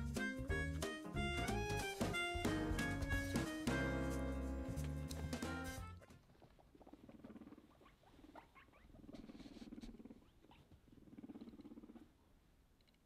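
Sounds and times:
guinea pig purring: 0:05.1 - 0:13.0.

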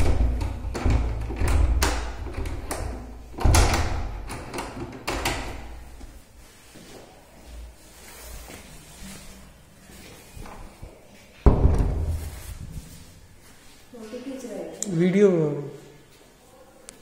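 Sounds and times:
wooden door thudding: 0:00.0 - 0:04.3, 0:11.4 - 0:12.2.

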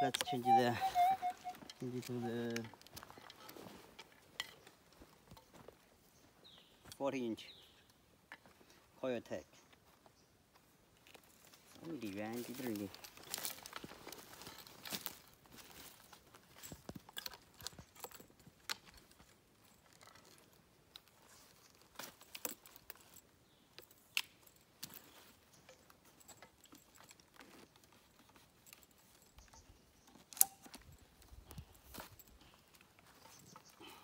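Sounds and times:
metal detector gear clicks and taps: 0:00.0 - 0:05.5, 0:23.8 - 0:33.8.

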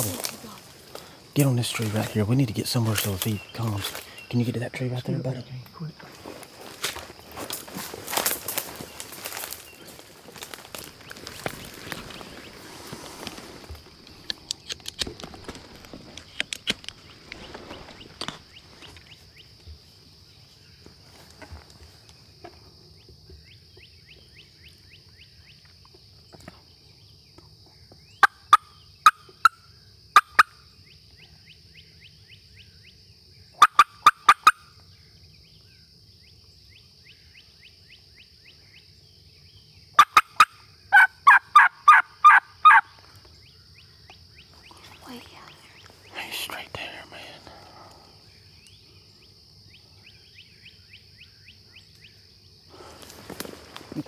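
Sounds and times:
brush rustling: 0:00.0 - 0:04.2, 0:06.0 - 0:19.3, 0:52.8 - 0:54.0
turkey call yelps: 0:33.6 - 0:34.6, 0:40.0 - 0:42.9.

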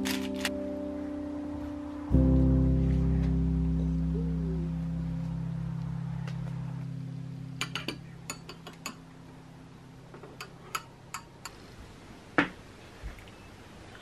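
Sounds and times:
background music: 0:00.0 - 0:09.8.

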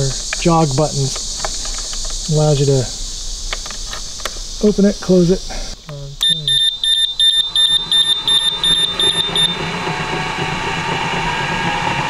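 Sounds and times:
electric motor hum and whine: 0:00.0 - 0:12.0
rapid high beeps: 0:06.2 - 0:09.6.

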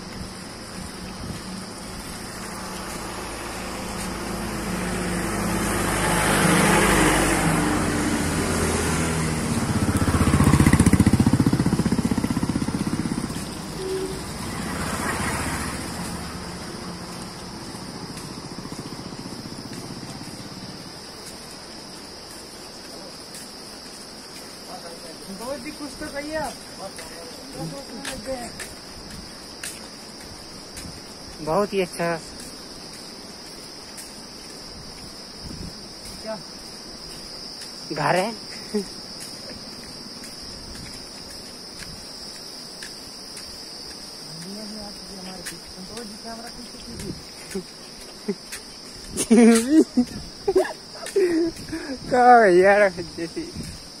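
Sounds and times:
high insect drone: 0:00.0 - 0:54.0
motorcycle engine pulling away: 0:01.5 - 0:20.9.

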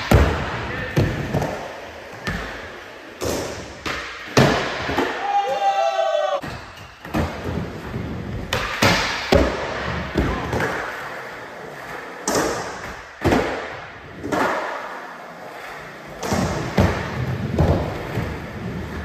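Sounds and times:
skateboard wheels rolling on concrete: 0:07.2 - 0:19.0
skateboard clacks and thuds: 0:16.1 - 0:19.0.

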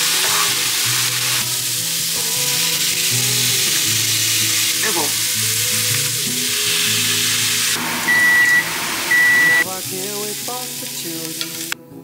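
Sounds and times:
food sizzling in frying pan: 0:00.0 - 0:11.8
background music: 0:00.0 - 0:12.0
electronic beeps: 0:08.0 - 0:09.6.

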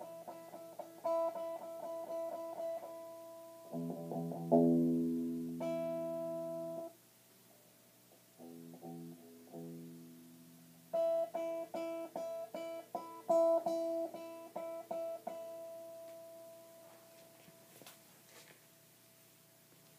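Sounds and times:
electric guitar picked notes: 0:00.0 - 0:07.0, 0:08.4 - 0:17.8.

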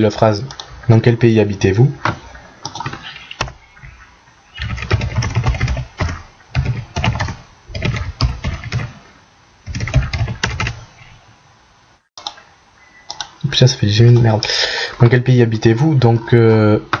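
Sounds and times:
typing on computer keyboard: 0:04.6 - 0:08.9, 0:09.7 - 0:10.8.

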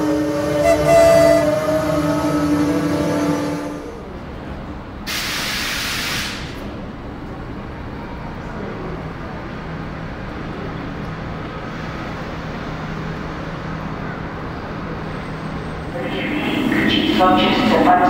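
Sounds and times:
railway station ambience: 0:00.0 - 0:18.0
compressed air hissing: 0:05.1 - 0:06.5.

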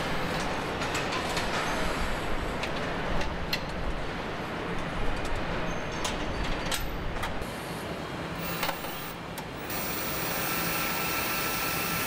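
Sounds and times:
hiss with high whine: 0:08.4 - 0:12.0.

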